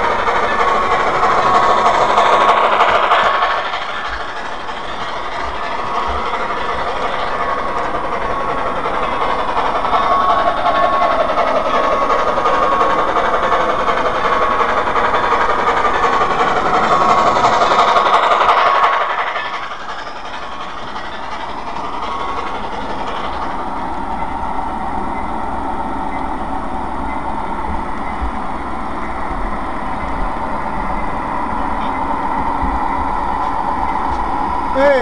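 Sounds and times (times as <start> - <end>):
model train motor whirring: 0.0 - 23.9.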